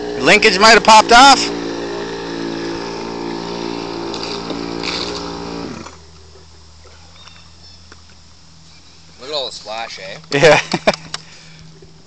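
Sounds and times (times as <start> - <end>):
two-stroke engine running: 0.0 - 6.1.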